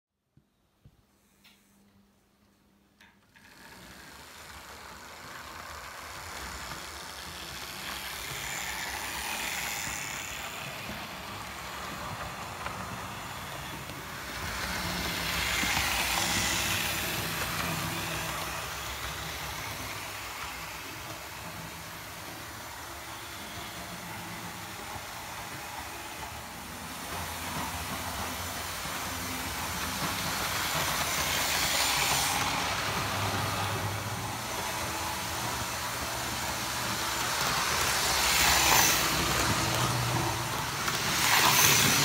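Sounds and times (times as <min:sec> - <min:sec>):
wheels rattling over rail joints: 0:03.1 - 0:42.0
model train motor humming: 0:03.3 - 0:42.0.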